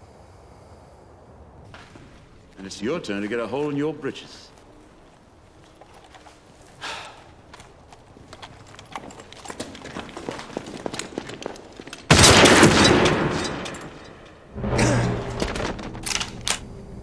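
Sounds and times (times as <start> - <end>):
gunfire cracks: 12.1 - 13.7.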